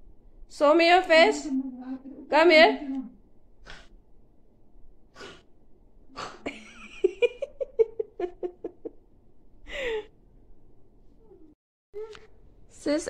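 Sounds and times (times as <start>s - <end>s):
girl giggling: 6.4s - 9.0s
breathing: 9.7s - 10.1s.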